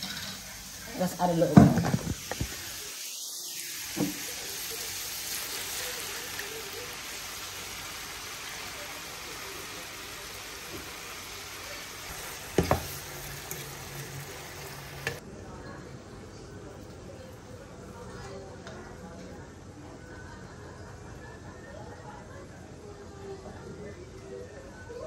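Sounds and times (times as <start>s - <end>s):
meat sizzling in a frying pan: 0.0s - 15.2s.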